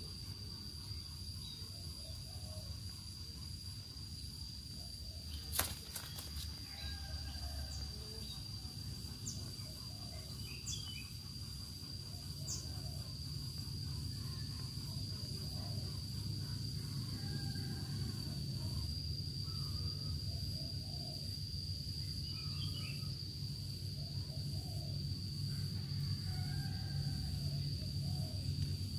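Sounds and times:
high-pitched insect trill: 0:00.0 - 0:28.9.

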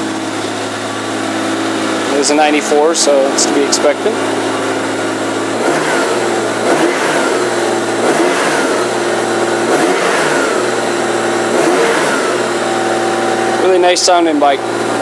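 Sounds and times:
motorcycle engine idling and revving: 0:00.0 - 0:15.0.

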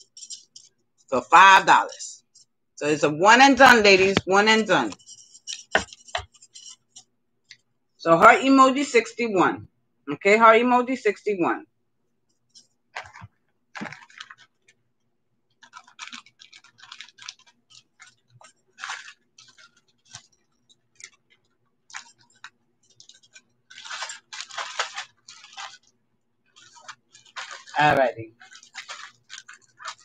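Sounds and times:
small objects clicking and rustling: 0:00.0 - 0:01.1, 0:03.6 - 0:07.6, 0:12.5 - 0:14.8, 0:15.5 - 0:30.0.

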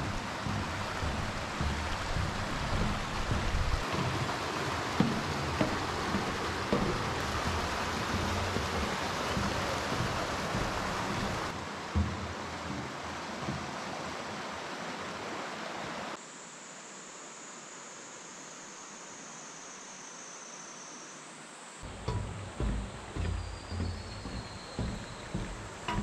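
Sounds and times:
footsteps on wooden walkway: 0:00.0 - 0:15.1, 0:21.8 - 0:26.0
mountain stream rushing: 0:00.0 - 0:16.2, 0:21.8 - 0:26.0.

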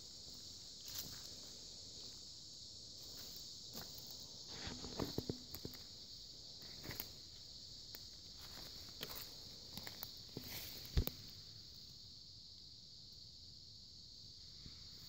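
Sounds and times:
high insect chorus: 0:00.0 - 0:15.0
footsteps crunching on forest floor: 0:00.8 - 0:01.5, 0:03.0 - 0:05.9, 0:08.3 - 0:11.2.

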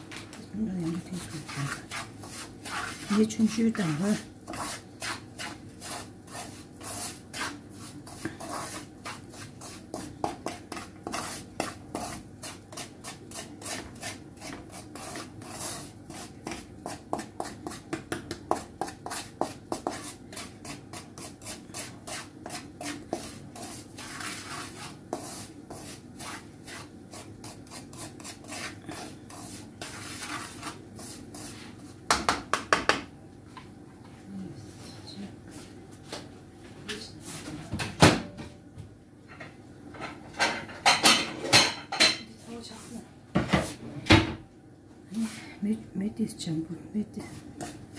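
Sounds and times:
wooden spatula scraping a pan: 0:00.8 - 0:17.9, 0:18.5 - 0:32.2, 0:40.8 - 0:44.0, 0:47.2 - 0:47.9.

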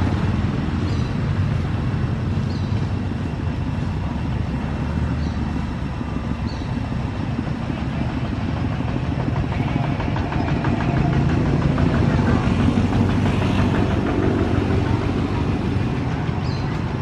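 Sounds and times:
engine rumbling: 0:00.0 - 0:17.0
fast ticking: 0:06.8 - 0:17.0.

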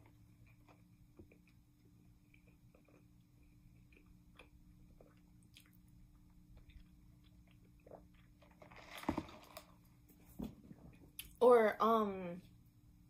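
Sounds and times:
chewing and mouth sounds: 0:00.0 - 0:09.0
slurping through a straw: 0:07.9 - 0:09.7.

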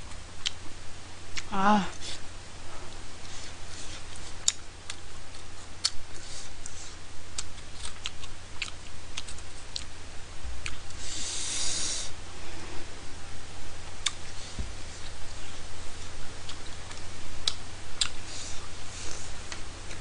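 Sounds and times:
chewing clicks: 0:04.4 - 0:06.0, 0:16.4 - 0:18.2
short hissing noise: 0:11.0 - 0:12.2.

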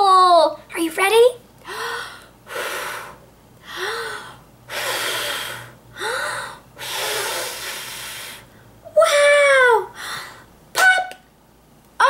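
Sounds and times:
woman blowing through lips: 0:04.7 - 0:05.7, 0:06.8 - 0:08.4.

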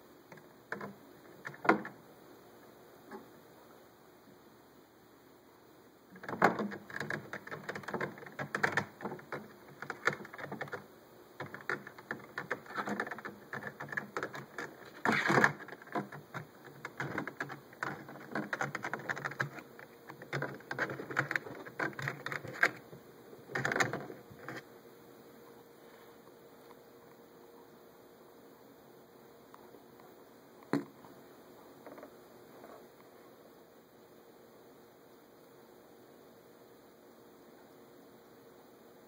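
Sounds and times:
claws scratching on plastic feeder: 0:06.1 - 0:24.7.

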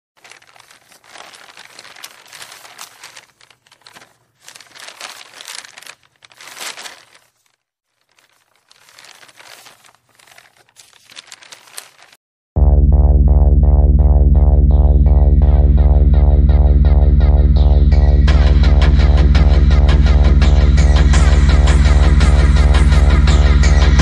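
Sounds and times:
paper crumpling and rustling: 0:00.2 - 0:12.2
loud music: 0:12.6 - 0:24.0.

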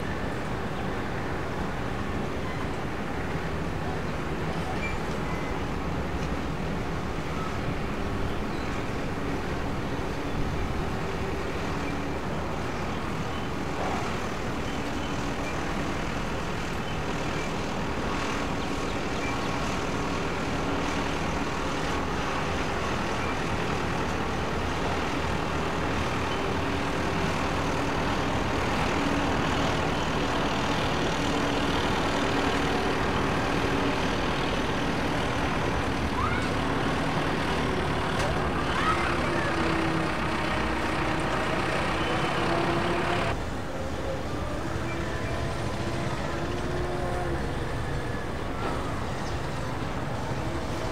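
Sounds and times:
jet engines humming: 0:14.3 - 0:43.7.

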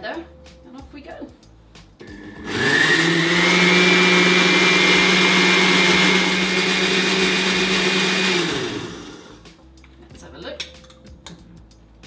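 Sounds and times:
blender motor whining: 0:02.0 - 0:09.4.

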